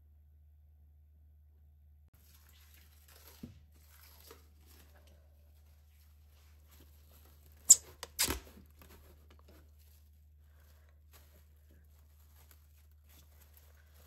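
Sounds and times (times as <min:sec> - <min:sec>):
cling film crackling rip: 0:07.6 - 0:08.6
cling film snapping: 0:07.7 - 0:08.5.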